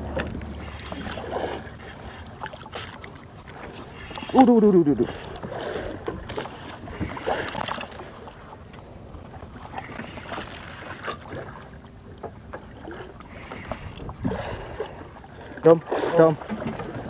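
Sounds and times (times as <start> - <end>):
water lapping against boat: 0.0 - 17.0
wind: 0.0 - 17.0.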